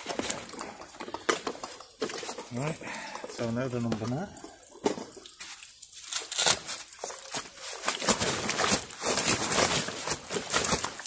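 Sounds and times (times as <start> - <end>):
fish slapping and rustling: 4.7 - 11.0.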